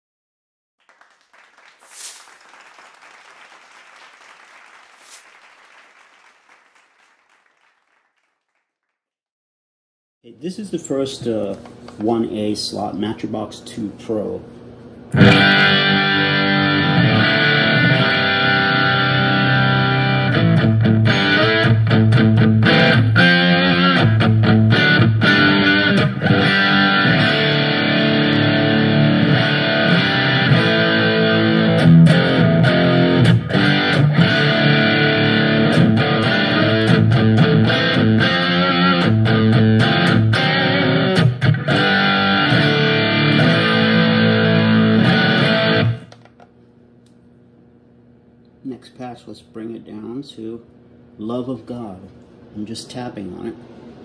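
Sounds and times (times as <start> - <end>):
electric guitar chords and lines: 15.1 - 46.1.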